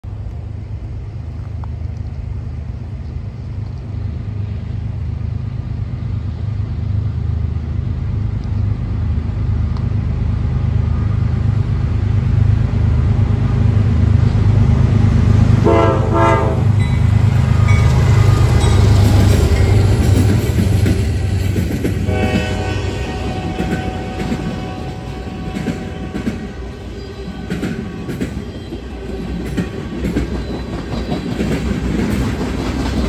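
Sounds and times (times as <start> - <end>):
diesel locomotive rumble: 0.0 - 33.0
locomotive horn blasts: 15.6 - 17.0, 22.0 - 29.4.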